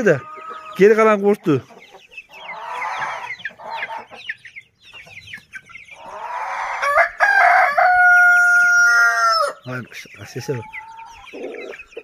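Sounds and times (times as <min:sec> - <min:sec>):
birds chirping: 0:00.0 - 0:12.0
rooster crowing: 0:06.2 - 0:09.6.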